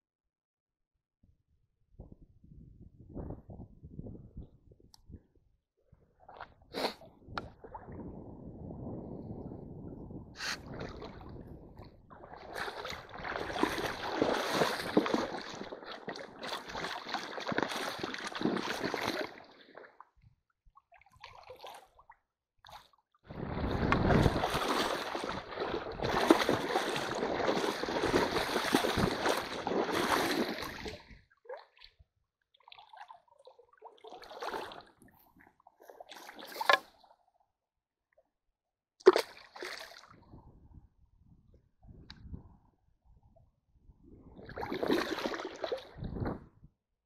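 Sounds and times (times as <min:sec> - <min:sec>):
water splashing and sloshing: 0:06.1 - 0:08.2, 0:10.4 - 0:37.3, 0:39.0 - 0:40.4, 0:44.2 - 0:46.7.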